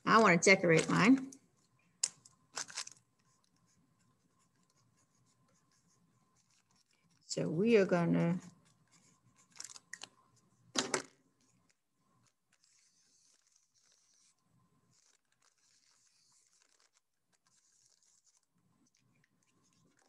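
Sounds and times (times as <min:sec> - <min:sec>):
marker writing on paper: 0:12.6 - 0:20.0.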